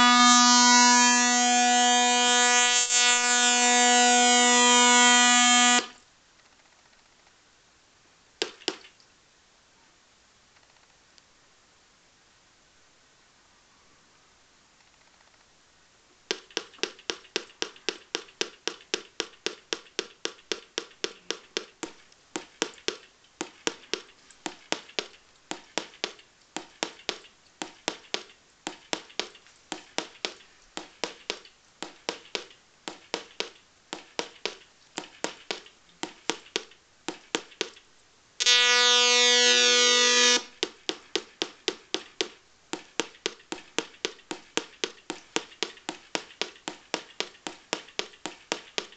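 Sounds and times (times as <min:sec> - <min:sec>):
steady buzzing tone: 0:00.0 - 0:06.0, 0:38.4 - 0:40.6.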